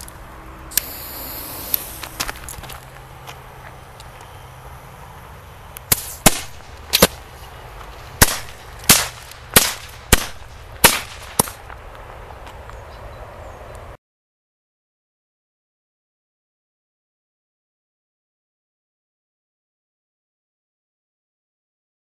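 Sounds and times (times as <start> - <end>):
firecracker bangs with echo: 5.9 - 7.2, 8.2 - 11.6.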